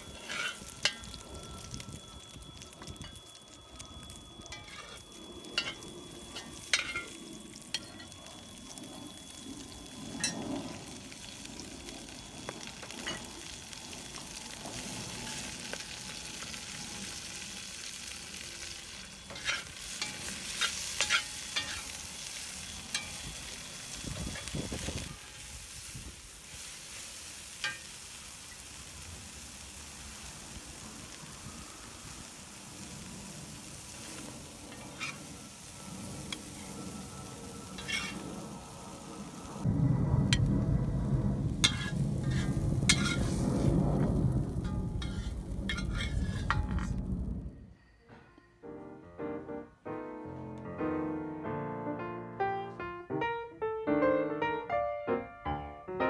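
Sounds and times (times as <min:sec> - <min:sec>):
metal spatula scraping a pan: 0:00.0 - 0:01.1, 0:04.5 - 0:08.2, 0:19.2 - 0:23.6, 0:34.0 - 0:35.3, 0:37.7 - 0:38.3, 0:41.6 - 0:43.4, 0:44.6 - 0:46.9
food sizzling in a wok: 0:00.0 - 0:39.7, 0:40.3 - 0:40.6, 0:41.5 - 0:46.9.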